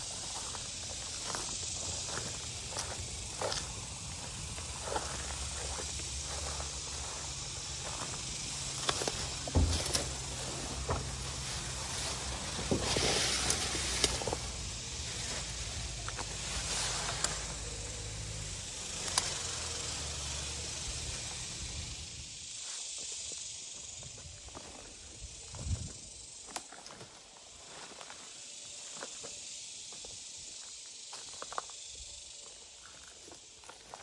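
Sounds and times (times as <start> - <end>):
footsteps through dry grass: 0.0 - 17.8
leafy plants rustling: 0.0 - 22.2
steady high hiss: 0.0 - 34.0.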